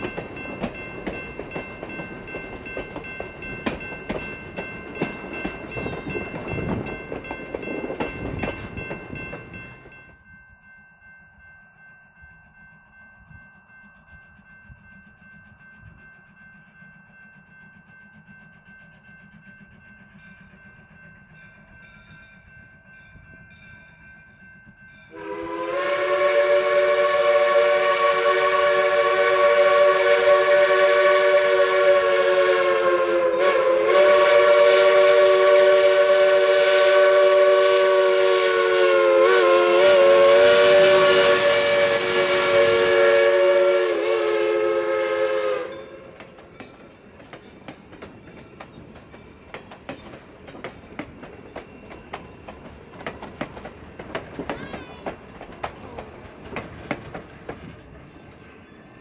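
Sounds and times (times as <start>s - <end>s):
train wheels clicking over rails: 0.0s - 10.0s, 25.7s - 59.0s
steam locomotive whistle: 25.1s - 46.3s.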